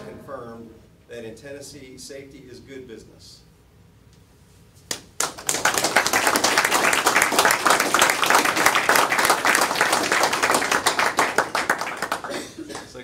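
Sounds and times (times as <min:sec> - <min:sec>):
group applauding: 0:04.9 - 0:13.0.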